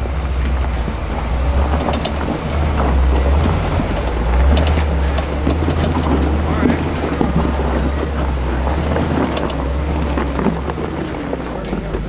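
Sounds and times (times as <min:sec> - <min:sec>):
pickup engine running low: 0:00.0 - 0:12.0
tires crunching on rock: 0:00.0 - 0:12.0.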